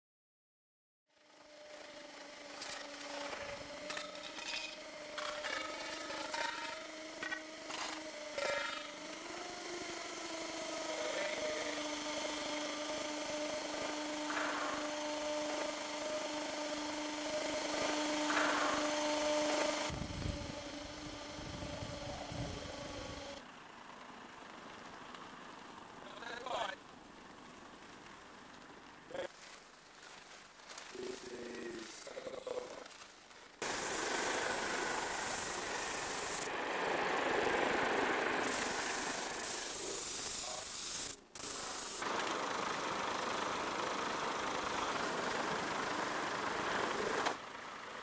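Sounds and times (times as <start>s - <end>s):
steady hum: 2.4s - 23.4s.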